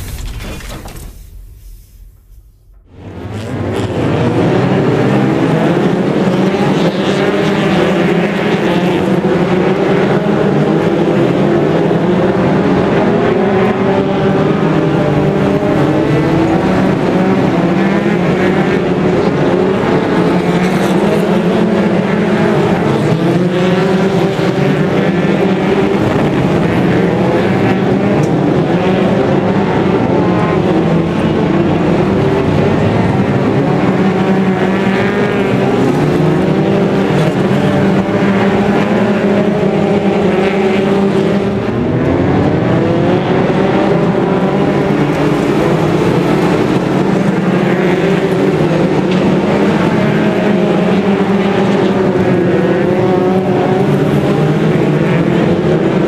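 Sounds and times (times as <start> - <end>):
racing car engines roaring: 0.0 - 56.0.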